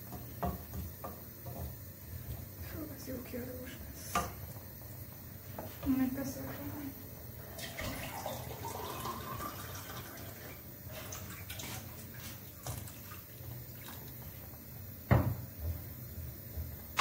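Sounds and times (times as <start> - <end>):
wooden spoon stirring: 0.0 - 4.6
sauce simmering and bubbling: 0.0 - 5.9, 6.5 - 17.0.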